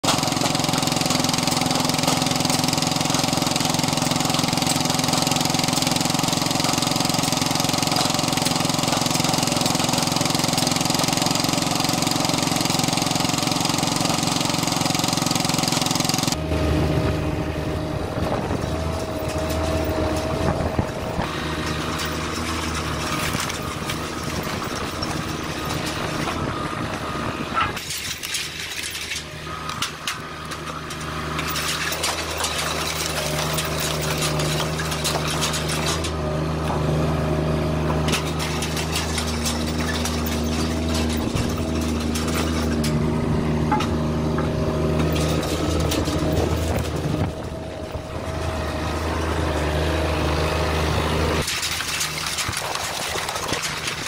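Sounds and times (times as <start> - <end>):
log splitter running: 0.0 - 54.0.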